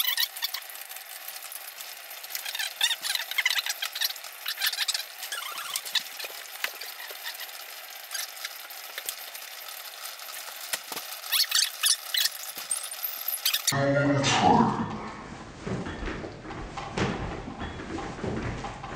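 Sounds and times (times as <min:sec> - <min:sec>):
saucepans bubbling and popping: 0:00.0 - 0:13.8.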